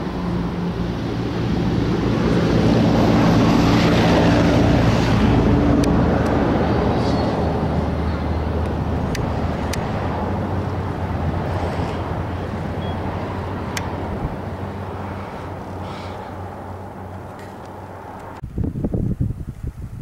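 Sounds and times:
vehicle passing by: 0.0s - 18.4s
sharp clicks: 8.6s - 9.9s.

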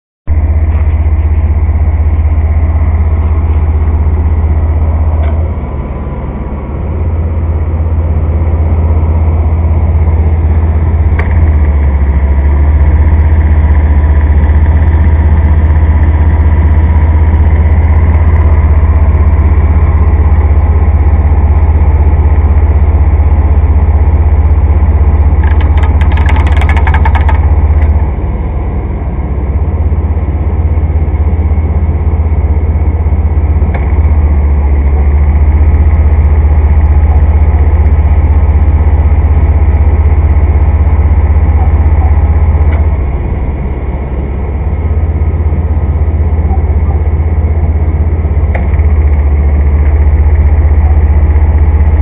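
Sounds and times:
engine and fan rumbling: 0.3s - 52.0s
clatter of clicks: 25.4s - 28.0s.

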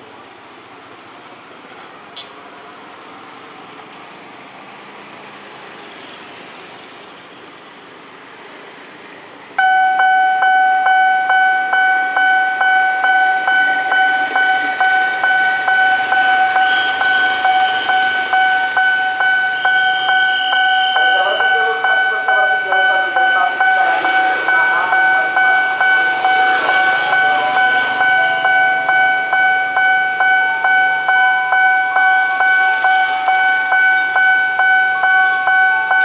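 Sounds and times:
road traffic idling: 0.0s - 36.0s
level crossing warning bell: 9.6s - 36.0s.

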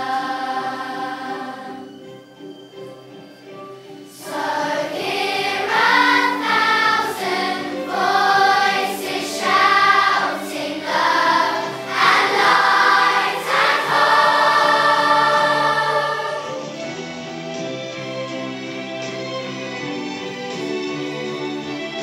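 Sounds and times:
children's choir singing: 0.0s - 2.4s, 4.0s - 17.0s
musical accompaniment: 0.0s - 22.0s.

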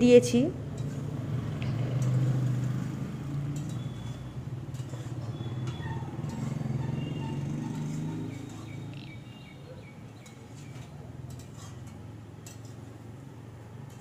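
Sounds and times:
metal spatula scraping a pan: 0.7s - 1.2s, 3.0s - 8.9s, 10.2s - 13.0s.

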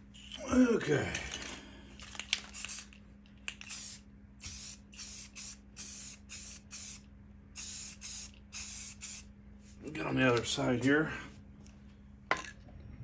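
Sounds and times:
spray paint can hissing: 2.4s - 2.9s, 3.6s - 7.0s, 7.6s - 9.3s.

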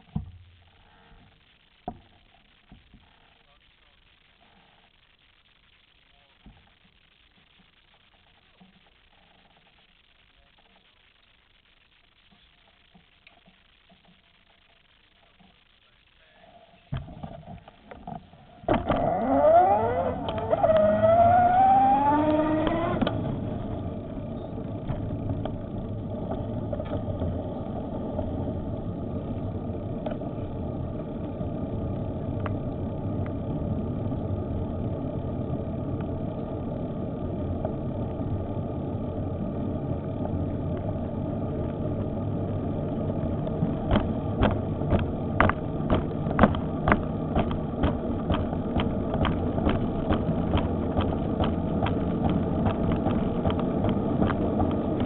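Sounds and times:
wind: 15.2s - 55.0s
electric bike motor whining: 18.2s - 55.0s
tyre rumble: 42.9s - 55.0s
sharp clicks and knocks: 43.4s - 55.0s.

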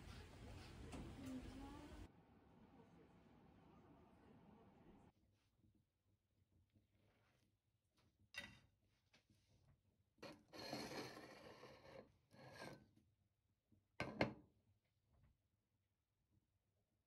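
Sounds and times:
ceramic plate scraping on steel: 10.3s - 12.8s.

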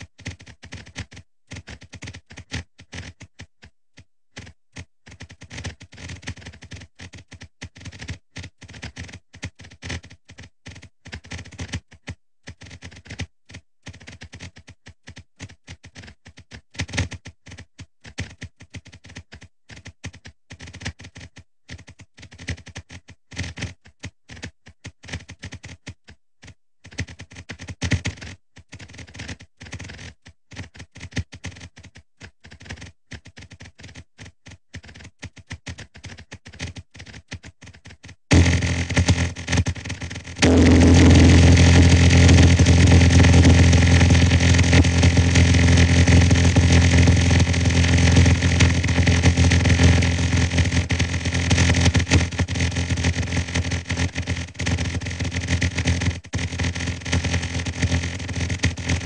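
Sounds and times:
rapid irregular short clicks: 5.1s - 25.8s, 26.8s - 59.0s.

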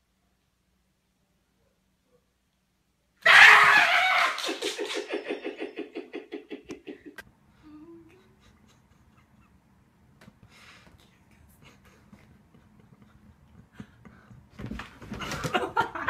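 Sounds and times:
person shrieking: 3.2s - 4.7s
person laughing: 3.3s - 7.2s, 8.0s - 9.7s.

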